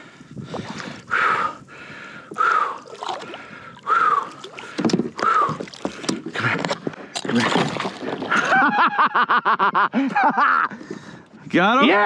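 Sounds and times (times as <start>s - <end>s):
water splashing against kayak: 0.1s - 9.0s.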